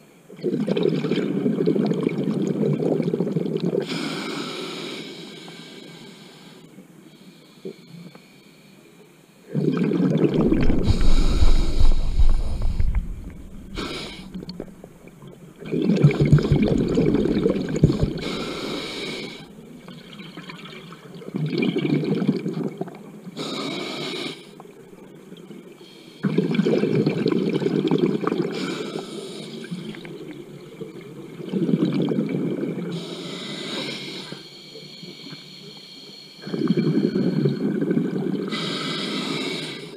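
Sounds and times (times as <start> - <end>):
bubbling underwater exhalations: 9.5 - 14.9, 15.6 - 23.0, 26.2 - 28.7
hissing regulator inhalations: 10.3 - 14.8, 16.0 - 19.6, 32.9 - 37.5, 38.5 - 39.9.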